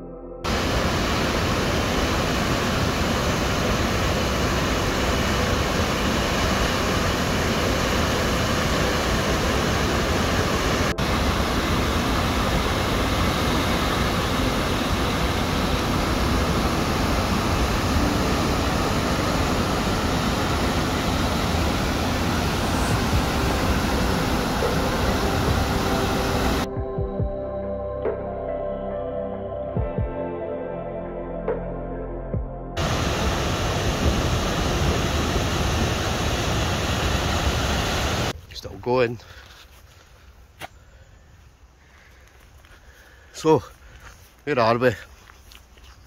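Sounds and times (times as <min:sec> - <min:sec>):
waterfall rushing: 0:00.5 - 0:26.7, 0:32.8 - 0:38.3.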